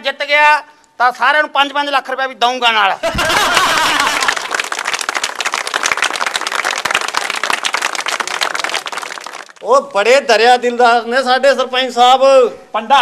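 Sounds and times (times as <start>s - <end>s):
crowd clapping: 3.2s - 9.8s.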